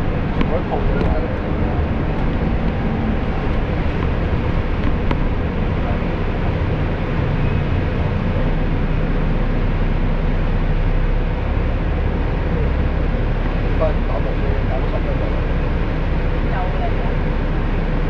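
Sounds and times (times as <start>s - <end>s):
road noise: 0.0s - 18.0s
vehicle engine rumble: 0.0s - 18.0s.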